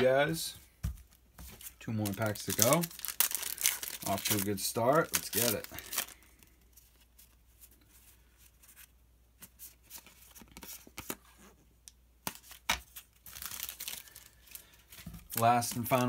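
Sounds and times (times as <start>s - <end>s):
cards and packaging crinkling: 0.9s - 8.9s, 12.2s - 16.0s.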